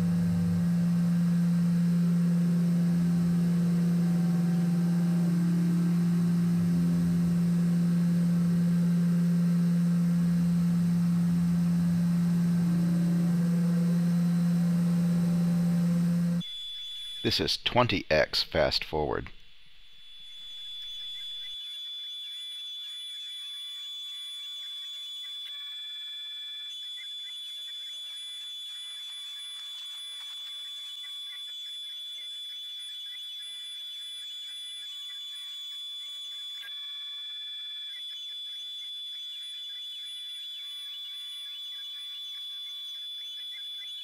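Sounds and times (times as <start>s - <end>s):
milling machine high whine: 0.0s - 16.4s
motor tones stepping up and down: 0.0s - 17.5s.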